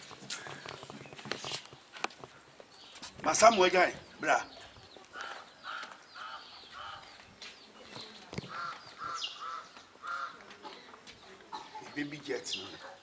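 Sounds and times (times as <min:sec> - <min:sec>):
high bird chirps: 0:02.8 - 0:10.3
short repeated bird calls: 0:04.5 - 0:07.2.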